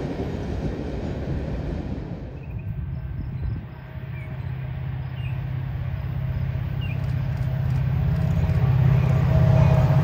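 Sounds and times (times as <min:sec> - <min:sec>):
diesel locomotive drone: 0:00.0 - 0:10.0.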